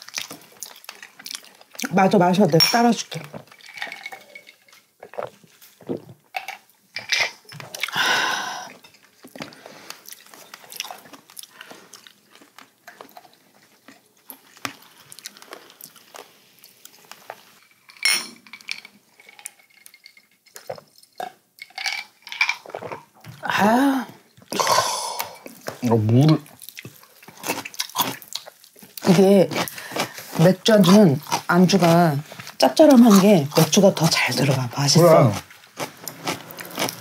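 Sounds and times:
chewing and crunching food: 0:00.0 - 0:37.0
glasses and cutlery clinking: 0:02.5 - 0:04.8, 0:17.9 - 0:20.6
swallowing drink: 0:24.5 - 0:25.6.

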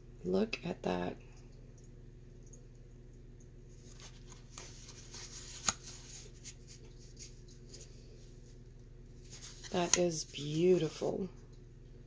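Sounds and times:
card rustling and scraping: 0:03.8 - 0:08.6, 0:09.2 - 0:10.7.

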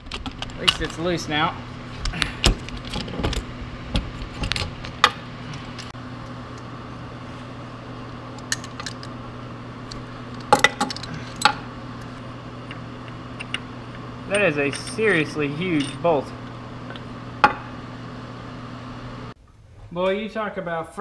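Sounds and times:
steady low hum: 0:00.0 - 0:21.0
metal tools clinking: 0:08.4 - 0:09.1, 0:10.5 - 0:11.6, 0:14.3 - 0:16.3.

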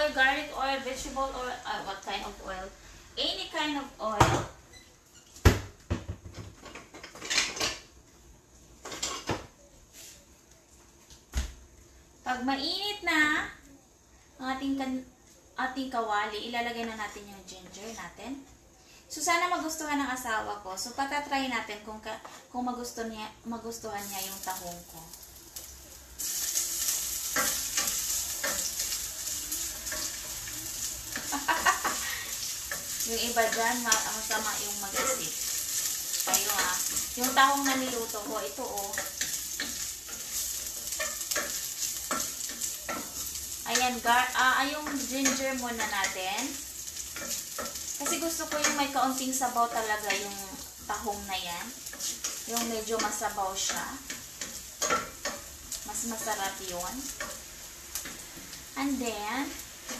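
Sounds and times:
ginger sizzling in hot oil: 0:00.0 - 0:05.7, 0:19.0 - 0:59.9
wooden spatula scraping pot: 0:26.4 - 0:58.3.

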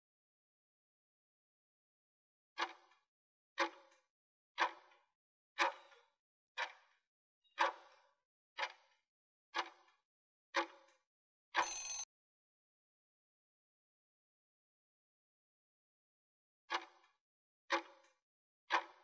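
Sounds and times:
brief loud tone: 0:11.6 - 0:12.0.

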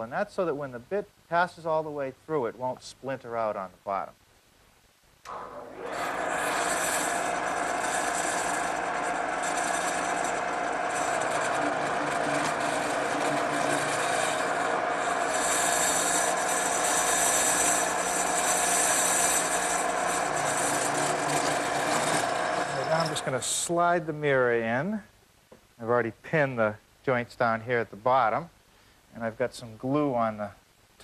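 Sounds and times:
drill press motor hum: 0:05.3 - 0:23.4
drill bit cutting wood: 0:05.3 - 0:23.7.

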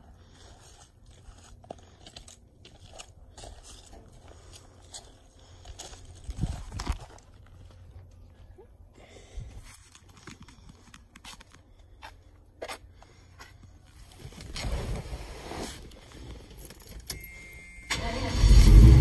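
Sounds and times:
truck engine starting: 0:17.9 - 0:19.0.

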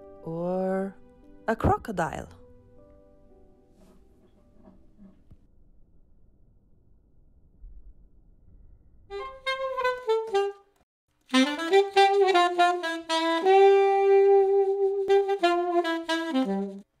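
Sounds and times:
jazz melody: 0:09.1 - 0:16.9.

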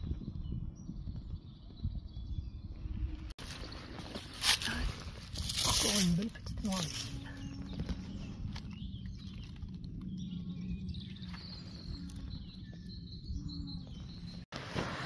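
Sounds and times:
bird chirps: 0:06.7 - 0:14.4.

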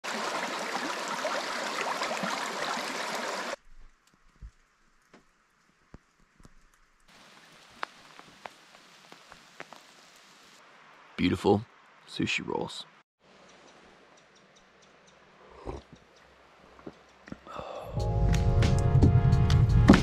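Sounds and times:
creek rushing over stones: 0:00.0 - 0:03.6, 0:07.1 - 0:11.2
faint outdoor hiss: 0:03.6 - 0:17.9.

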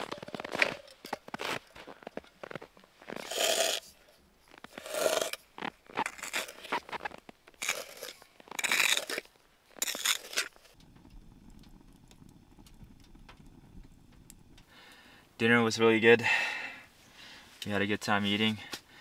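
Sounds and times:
faint low steady hum: 0:10.8 - 0:17.7.

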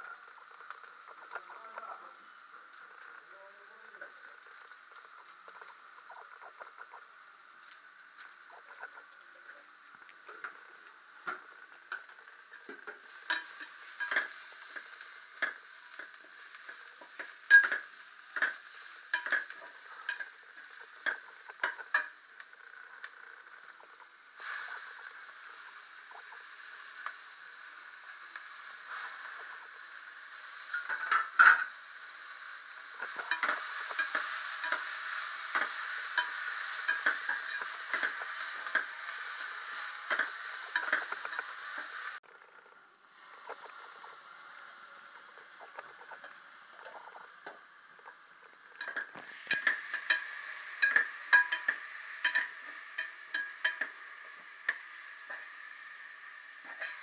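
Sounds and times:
onions sizzling in oil: 0:00.0 - 0:42.2, 0:43.1 - 0:57.0.

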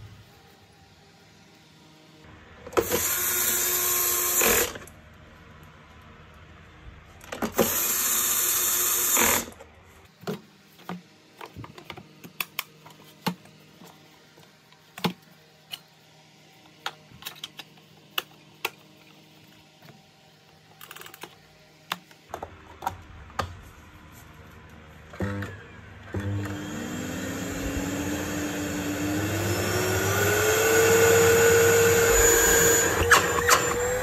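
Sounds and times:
cordless drill driving screw: 0:07.6 - 0:09.6, 0:28.9 - 0:34.0.

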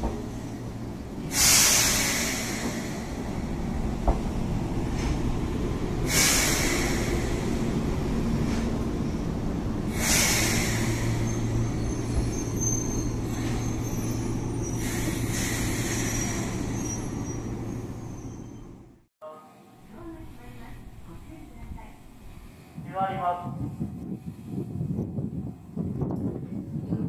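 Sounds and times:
train rumbling on rails: 0:00.0 - 0:19.1, 0:19.9 - 0:27.0
hiss bursts: 0:01.2 - 0:03.4, 0:06.0 - 0:07.8, 0:09.9 - 0:11.8
wheel squeals: 0:11.1 - 0:18.9.

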